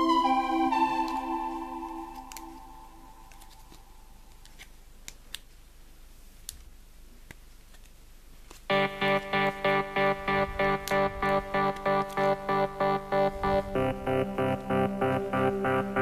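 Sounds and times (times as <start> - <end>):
keyboard chord: 0.0 - 3.3, 8.7 - 16.0
music: 0.0 - 3.5, 8.7 - 16.0.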